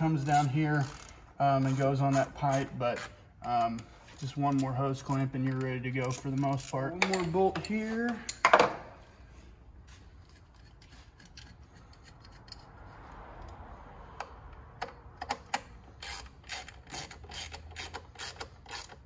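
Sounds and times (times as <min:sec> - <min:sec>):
hand ratchet clicking: 0:00.1 - 0:07.2, 0:14.2 - 0:19.0.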